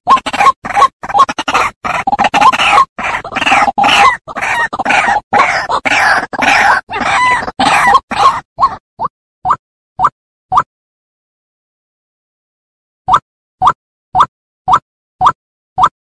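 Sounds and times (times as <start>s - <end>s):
waterhen croaking calls: 0.0s - 9.6s.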